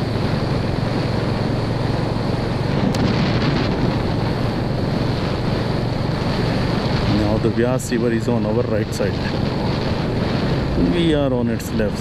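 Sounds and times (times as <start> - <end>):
motorcycle engine running: 0.0 - 12.0
wind buffeting microphone: 0.0 - 12.0.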